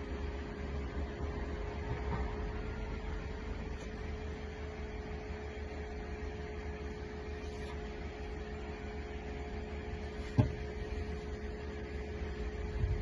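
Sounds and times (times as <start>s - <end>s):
steady low hum: 0.0s - 13.0s
sharp knock: 10.4s - 10.6s.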